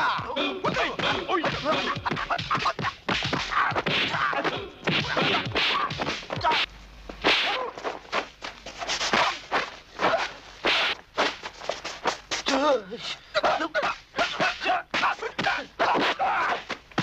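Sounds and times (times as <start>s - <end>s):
fighters shouting and grunting: 0.0s - 6.7s, 12.4s - 17.0s
sharp slapping hits: 0.7s - 12.4s.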